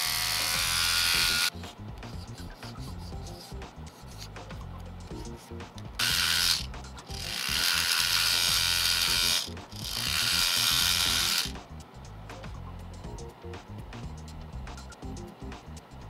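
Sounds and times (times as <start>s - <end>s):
dry scraping on sanding stick: 0.3s - 4.4s.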